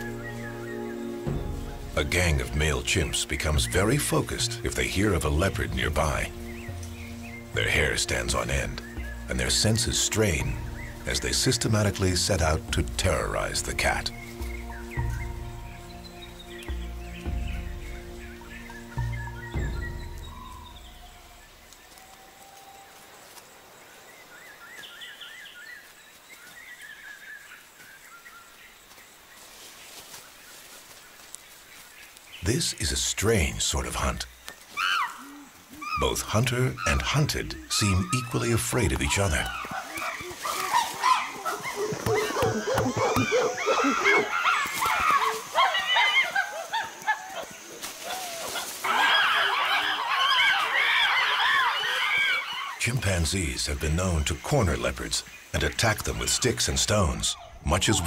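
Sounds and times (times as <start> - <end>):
bird chirping: 0.0 - 22.9, 23.6 - 47.8
chimpanzees barking and hooting: 34.7 - 53.0.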